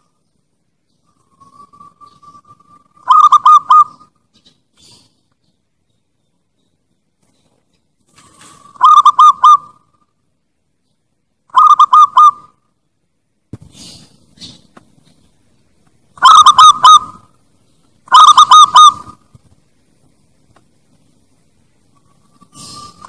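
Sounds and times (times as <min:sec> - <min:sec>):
bird honking call notes: 0:01.1 - 0:04.2, 0:08.6 - 0:10.0, 0:11.5 - 0:12.6, 0:16.2 - 0:17.3, 0:18.1 - 0:19.2
soft scratchy sound: 0:19.1 - 0:23.0.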